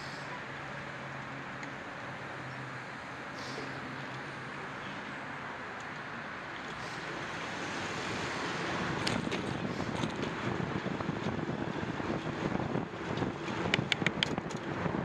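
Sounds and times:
wind rushing over microphone: 0:06.1 - 0:15.0
bicycle clicks and rattles: 0:09.0 - 0:10.3, 0:13.1 - 0:14.9.

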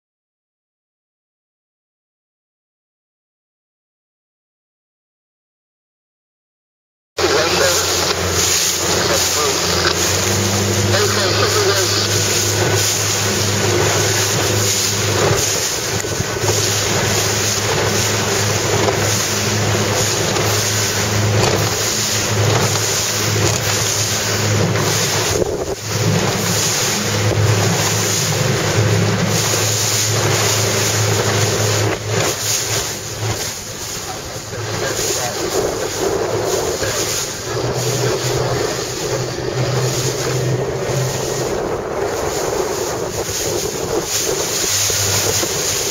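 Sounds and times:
choppy water rushing: 0:07.2 - 0:45.9
motorboat engine hum: 0:07.2 - 0:45.9
wind buffeting microphone: 0:07.2 - 0:45.9.

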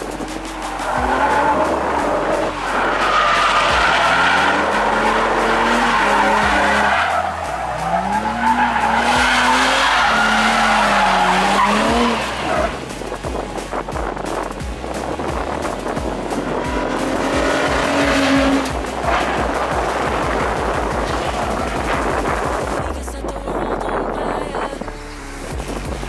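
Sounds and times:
tyres squealing: 0:00.0 - 0:12.9
car engine revving: 0:00.0 - 0:26.0.

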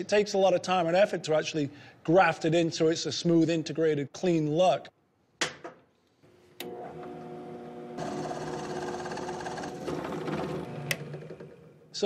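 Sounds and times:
drill press motor humming: 0:06.6 - 0:11.9.

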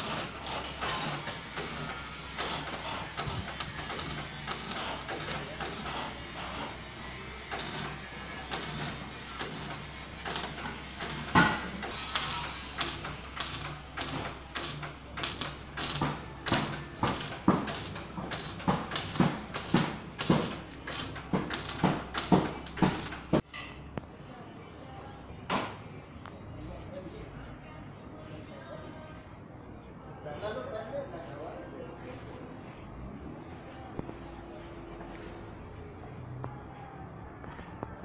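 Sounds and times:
welder crackling bursts: 0:00.0 - 0:23.4.

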